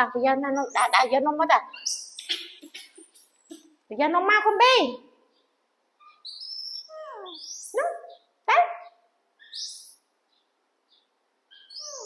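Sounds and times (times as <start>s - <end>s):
baby monkey crying: 11.6s - 12.0s.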